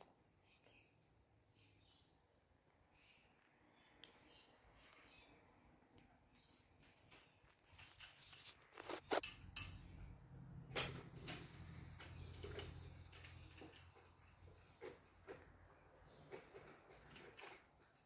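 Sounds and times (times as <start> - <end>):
small clicks of food and dish: 16.2 - 18.0.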